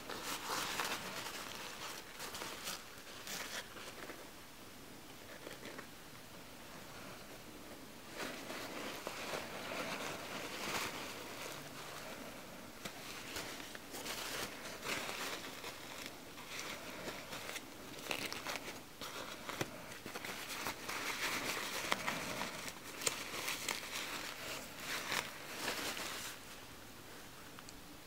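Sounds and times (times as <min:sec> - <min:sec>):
diapers crinkling and rustling: 0:00.0 - 0:04.3, 0:08.0 - 0:26.6.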